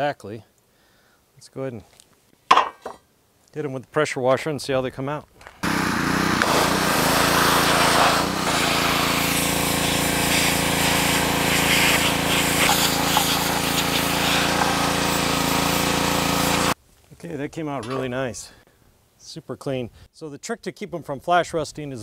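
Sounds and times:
pressure washer motor hum: 5.6 - 16.8
water jet spraying metal: 5.6 - 16.8.

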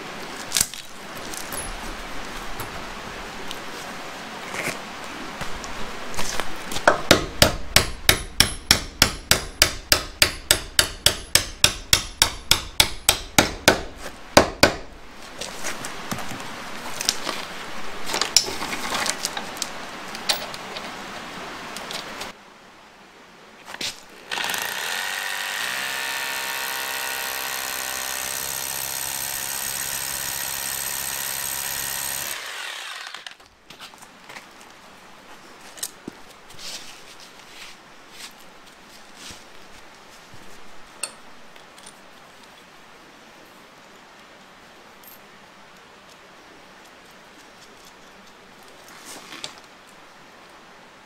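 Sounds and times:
handling clicks and scrapes: 15.3 - 21.0
rotary hammer drill boring concrete: 24.2 - 33.4.

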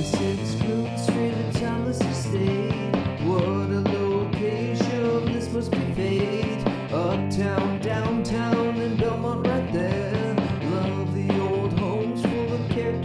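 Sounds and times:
man singing: 0.0 - 13.0.

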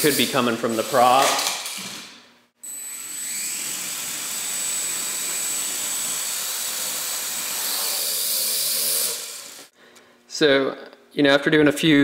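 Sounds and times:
quadcopter motors whirring: 2.6 - 9.7.

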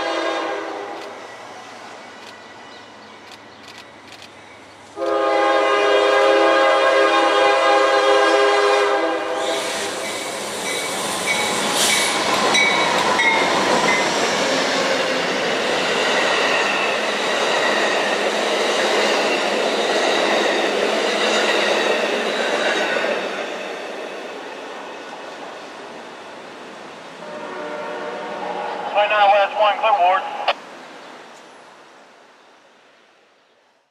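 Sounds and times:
locomotive horn chord: 0.0 - 0.9, 5.0 - 9.4, 27.2 - 29.8
train wheels on rails: 0.0 - 27.5.

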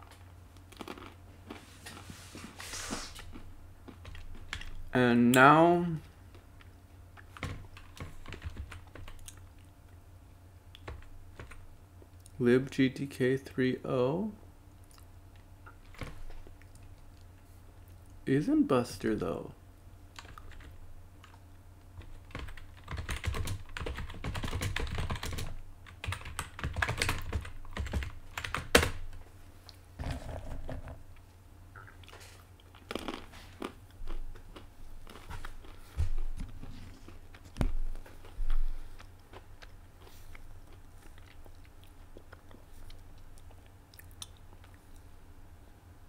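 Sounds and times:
steady low hum: 0.0 - 46.0
typing on a computer keyboard: 7.4 - 9.3, 20.2 - 20.8, 22.0 - 29.0.

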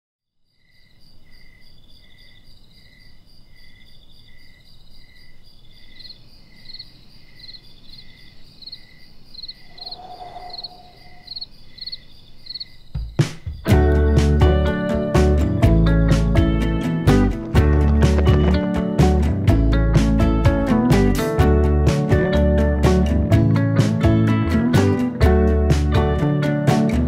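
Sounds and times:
crickets chirping: 0.4 - 13.8.

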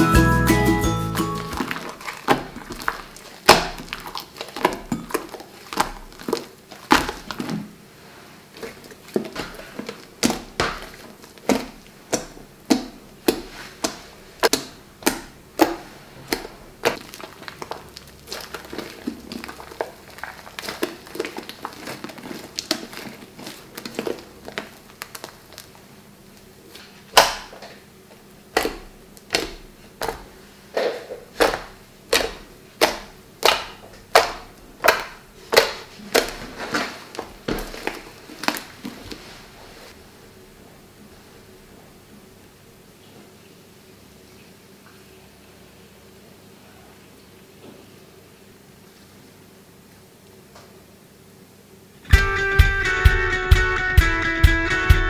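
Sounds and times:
slime squished by hand: 1.2 - 7.8, 8.5 - 27.7, 28.5 - 39.6.

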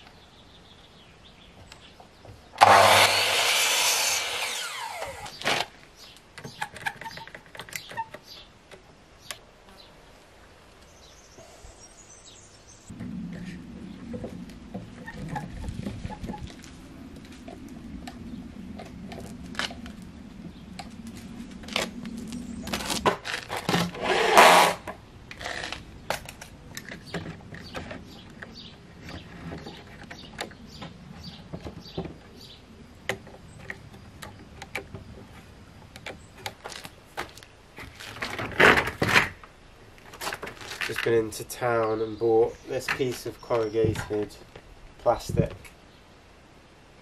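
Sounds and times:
knocks and clicks of timber and tools: 6.3 - 9.0, 22.9 - 32.4, 33.0 - 41.2.

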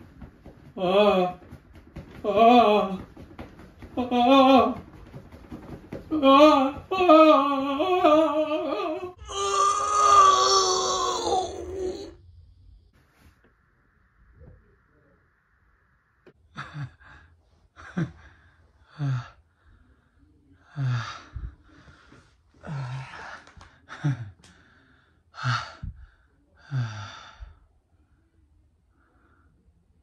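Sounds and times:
man moaning and sighing: 0.8 - 1.4, 6.1 - 12.2.

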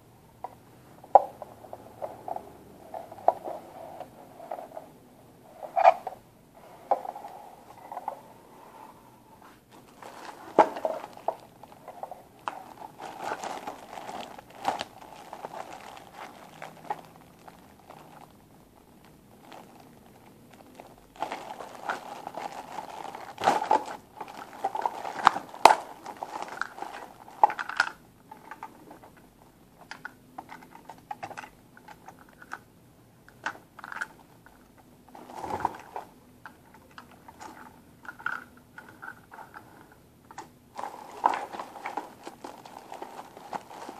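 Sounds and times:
plastic bag crinkling: 9.7 - 28.0, 35.1 - 36.1, 40.7 - 43.9.

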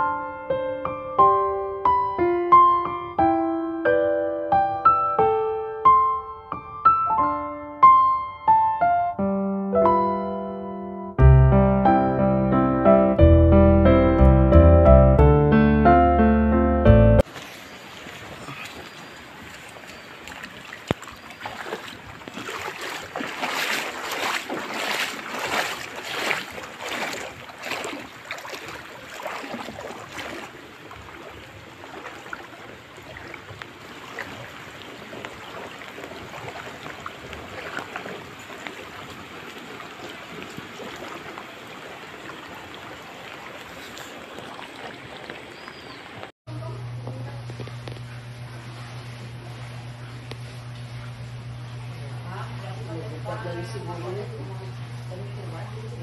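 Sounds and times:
rain: 17.2 - 21.8, 22.4 - 46.3
rushing floodwater: 17.2 - 46.3
low steady hum: 46.5 - 56.0.

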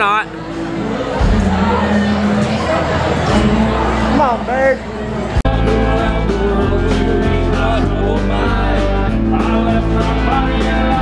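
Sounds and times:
live country band playing: 1.2 - 11.0
person singing: 5.4 - 11.0.

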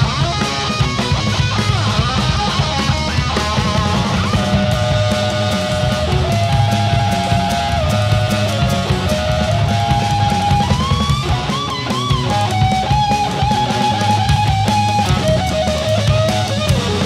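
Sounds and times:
bass guitar: 0.0 - 17.0
drums: 0.0 - 17.0
overdriven electric guitar lead: 0.0 - 17.0.

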